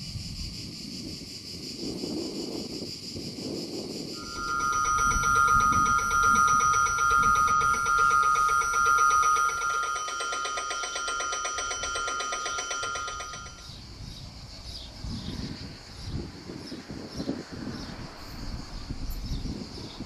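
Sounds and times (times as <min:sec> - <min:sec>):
level crossing warning bell: 0:04.2 - 0:13.7.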